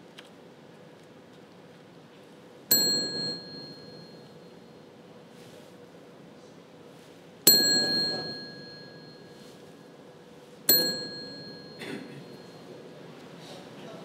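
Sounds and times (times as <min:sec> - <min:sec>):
desk call bell ding: 0:02.7 - 0:04.6, 0:07.5 - 0:09.7, 0:10.7 - 0:12.8.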